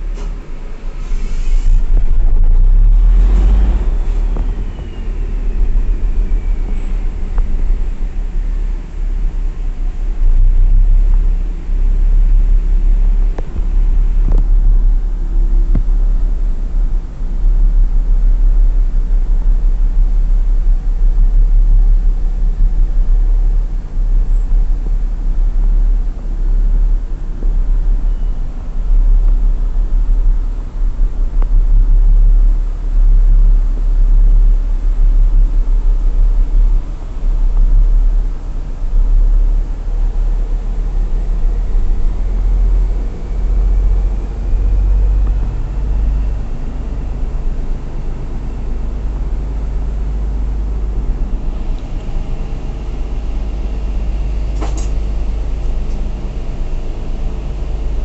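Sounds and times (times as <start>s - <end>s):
diesel engine rumble in cab: 0.0s - 58.0s
sharp click: 54.6s - 55.0s.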